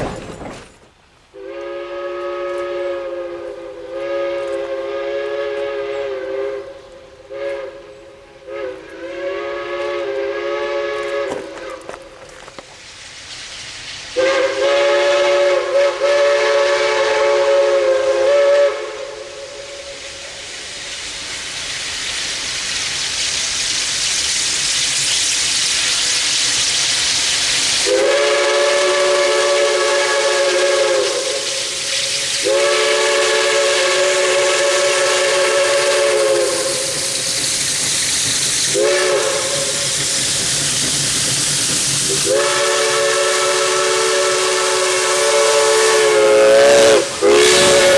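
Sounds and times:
steam exhaust hissing: 0.0 - 47.9
steam whistle blasts: 1.3 - 12.2, 14.2 - 21.0, 27.8 - 37.3, 38.7 - 40.0, 42.1 - 47.9.

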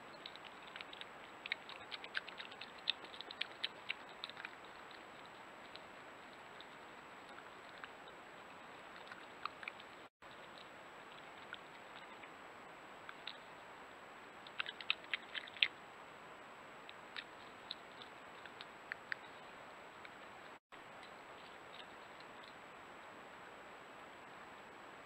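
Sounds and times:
badger chewing in wood chips: 0.1 - 12.3, 14.4 - 15.7.

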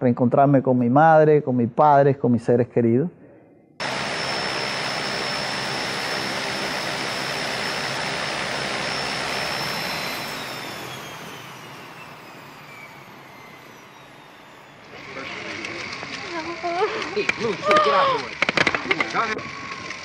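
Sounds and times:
jet engines whining: 3.8 - 16.7.

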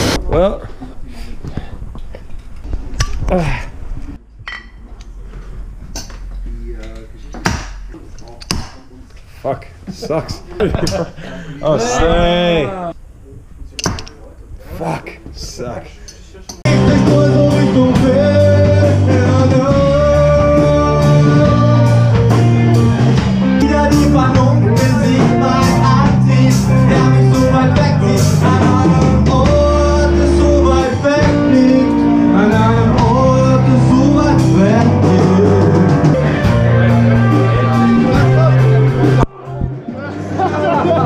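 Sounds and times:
rock music with singing: 16.6 - 40.4.

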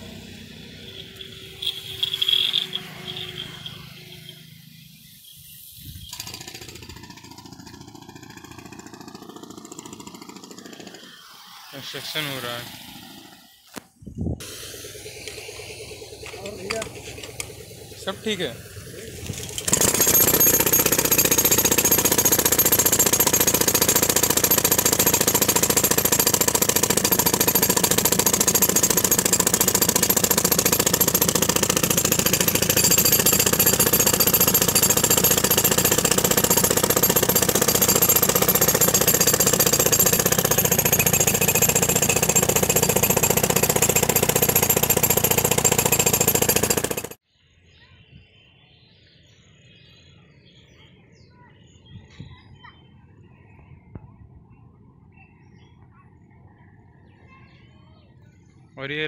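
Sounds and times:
demolition hammer breaking concrete: 19.3 - 47.2.

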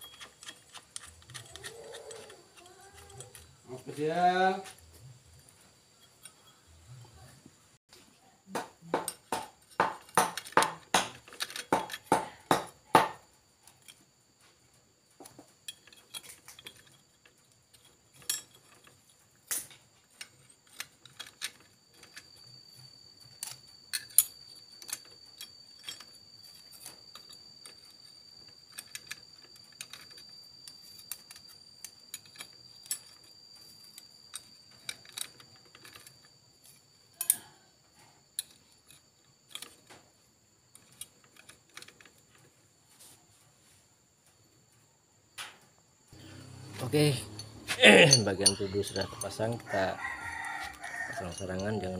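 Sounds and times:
metal clutch plates clinking: 0.0 - 4.8, 15.6 - 37.6, 46.2 - 51.9.

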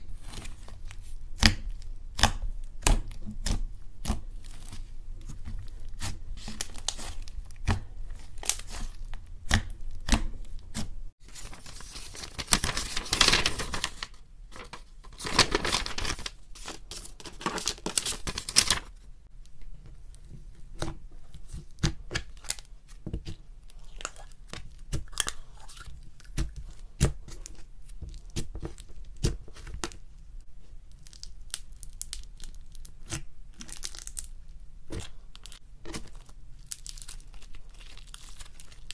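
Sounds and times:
slime crackling and popping: 30.9 - 38.9.

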